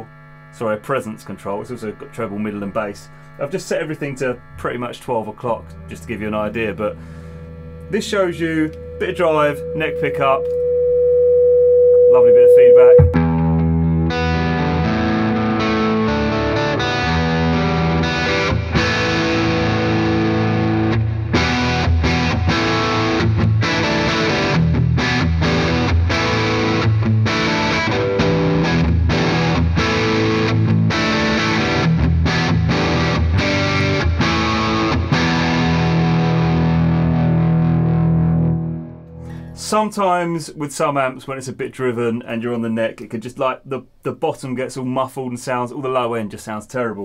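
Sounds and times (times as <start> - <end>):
overdriven electric guitar chords: 3.1 - 39.6.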